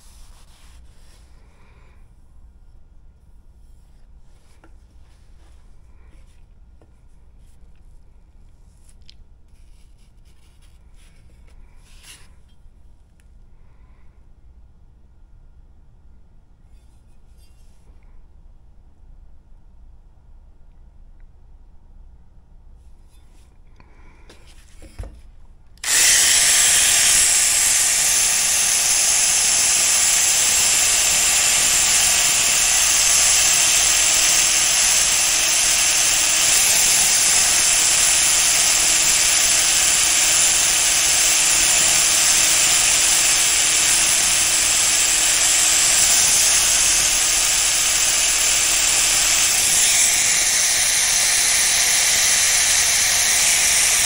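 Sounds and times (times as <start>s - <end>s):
power tool grinding steel: 25.8s - 54.0s.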